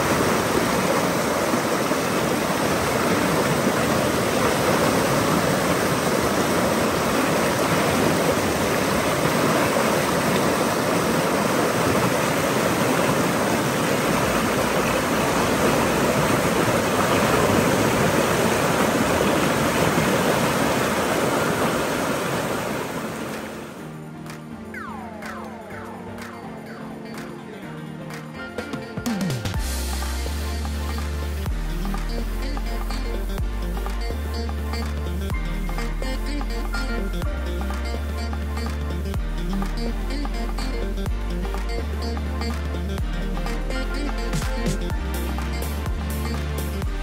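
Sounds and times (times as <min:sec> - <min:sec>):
river rapids rushing: 0:00.0 - 0:23.9.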